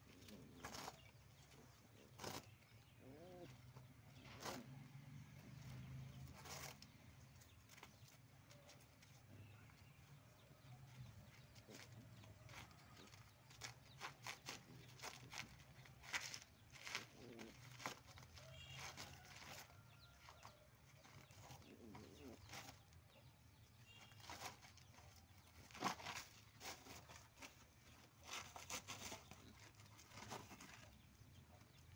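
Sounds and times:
paws scraping on gravel: 0.0s - 23.0s.

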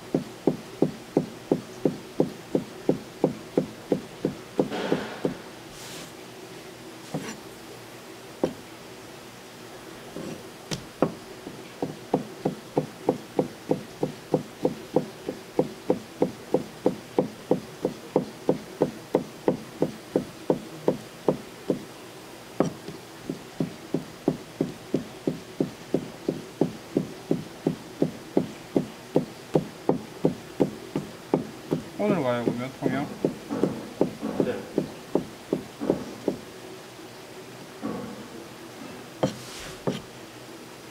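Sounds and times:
scattered knocks: 0.1s - 5.4s, 22.6s - 36.4s
knife chopping on cutting board: 2.2s - 5.4s, 7.1s - 7.4s, 32.5s - 36.4s, 39.2s - 40.1s.

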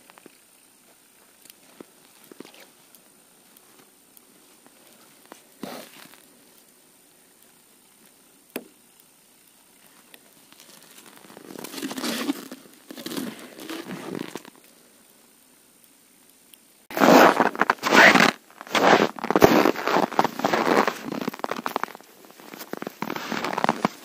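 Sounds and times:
rustling and crinkling plastic: 0.0s - 6.8s, 9.7s - 14.8s, 16.9s - 24.0s.

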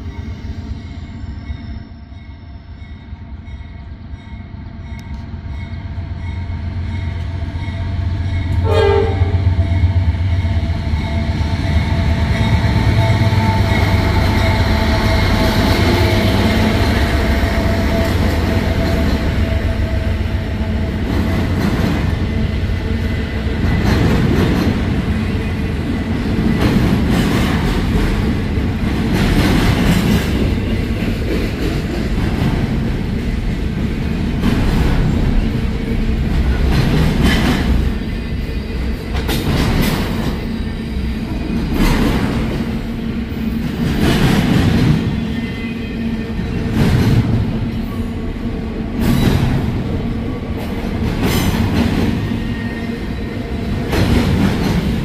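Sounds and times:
train rumbling past: 0.0s - 55.0s
train air horn: 8.6s - 10.0s
wheels clacking over rails: 53.8s - 55.0s.

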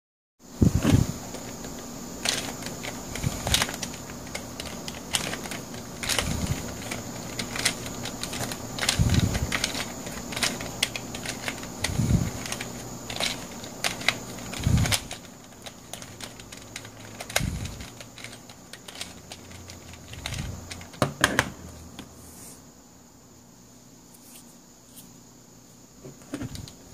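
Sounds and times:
plastic puzzle pieces clicking: 1.3s - 21.5s.

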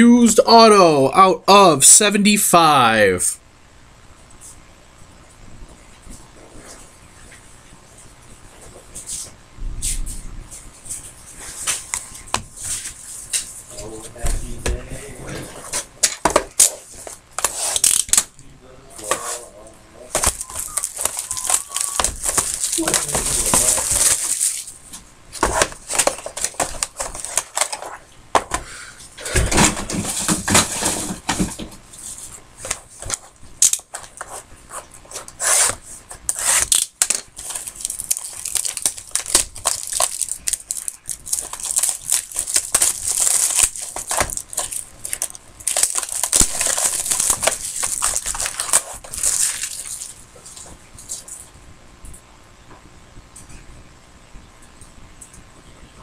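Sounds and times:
plastic wrapper crinkling and tearing: 16.6s - 18.3s, 20.1s - 24.8s, 25.4s - 28.0s, 32.6s - 34.2s, 35.5s - 51.3s.

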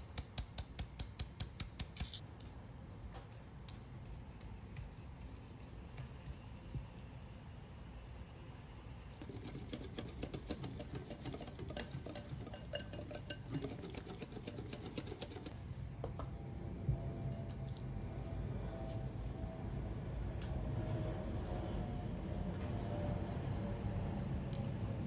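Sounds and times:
utensil scraping batter in bowl: 7.9s - 15.6s
utensil tapping glass bowl: 10.5s - 15.4s.

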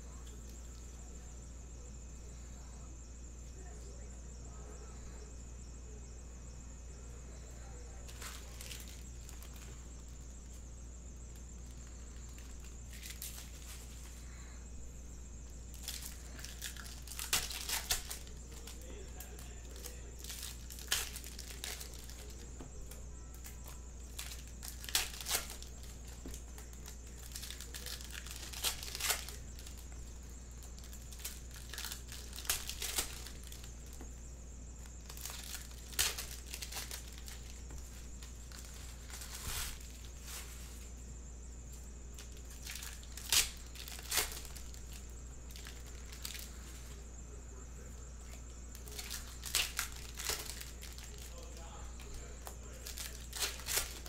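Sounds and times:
wrapper being torn and crinkled: 8.1s - 9.7s, 11.7s - 14.5s, 15.7s - 22.5s, 23.3s - 29.9s, 30.6s - 34.0s, 35.0s - 37.6s, 42.2s - 46.9s, 48.7s - 54.0s.

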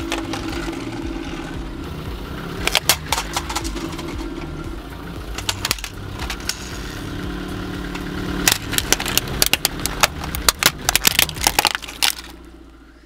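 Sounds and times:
car engine running: 0.0s - 13.0s
plastic toy cracking under tyre: 2.6s - 3.8s, 8.5s - 12.5s.

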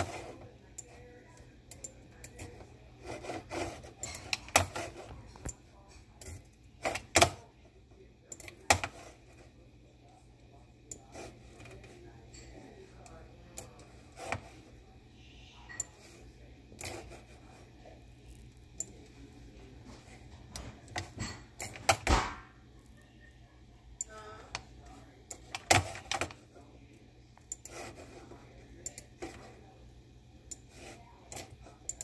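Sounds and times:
steady low hum: 0.0s - 32.0s
computer mouse clicking: 1.7s - 2.4s.

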